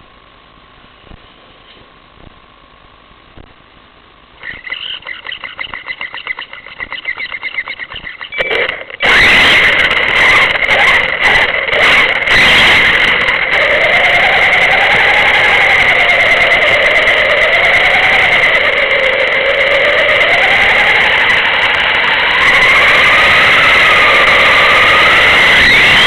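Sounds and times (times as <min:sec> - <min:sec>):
car engine running: 0:08.0 - 0:17.1.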